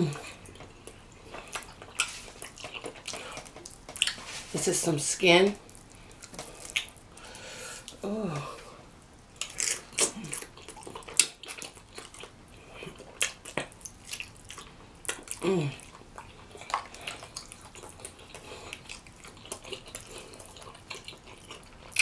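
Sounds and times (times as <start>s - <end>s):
wet chewing and lip-smacking: 0.1s - 4.4s, 5.6s - 8.0s, 9.4s - 22.0s.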